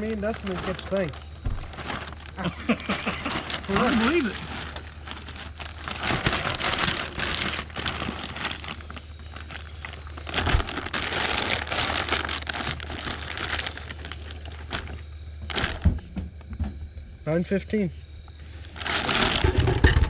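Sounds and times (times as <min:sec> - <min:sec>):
plastic bag crinkling: 0:00.0 - 0:15.8, 0:18.6 - 0:19.7
bag thudding into basket: 0:01.4 - 0:02.2.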